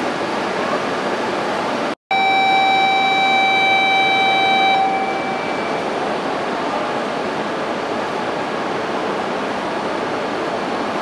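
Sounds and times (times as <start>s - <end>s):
train and platform noise: 0.0s - 11.0s
electronic warning beep: 2.1s - 6.0s.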